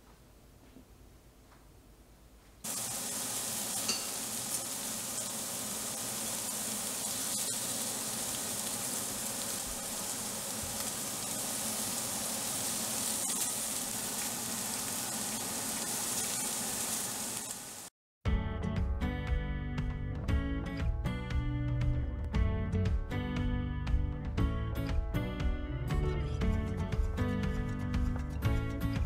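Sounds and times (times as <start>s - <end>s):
steak sizzling in a grill pan: 2.6s - 17.9s.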